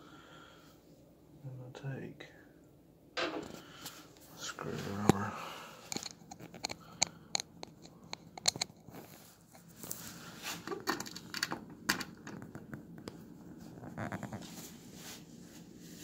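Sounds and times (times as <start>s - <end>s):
screwdriver clicking and scraping: 5.9s - 9.6s.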